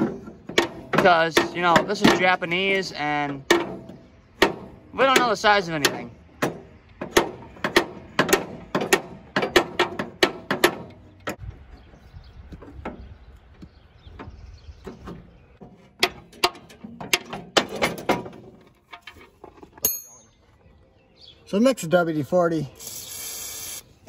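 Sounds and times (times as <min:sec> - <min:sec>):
wrench knocking on metal: 0:03.3 - 0:11.4.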